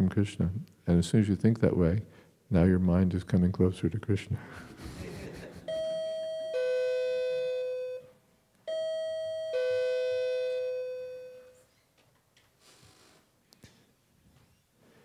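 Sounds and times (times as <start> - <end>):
ding-dong doorbell chime: 5.7 - 8.0, 8.7 - 11.5.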